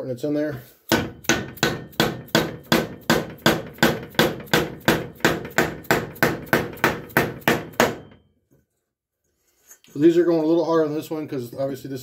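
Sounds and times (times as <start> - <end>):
mallet tapping on metal: 0.9 - 8.2.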